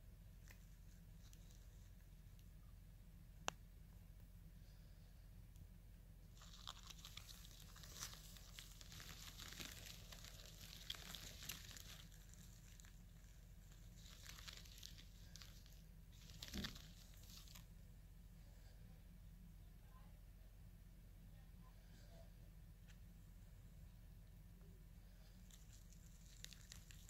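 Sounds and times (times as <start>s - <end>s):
faint dry crackling rustles: 0.3s - 2.8s, 6.2s - 18.9s, 24.6s - 27.0s.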